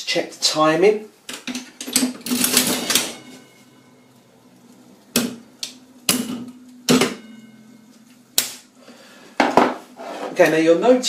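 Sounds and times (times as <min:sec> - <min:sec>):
slot machine mechanism clatter: 0:01.5 - 0:03.3.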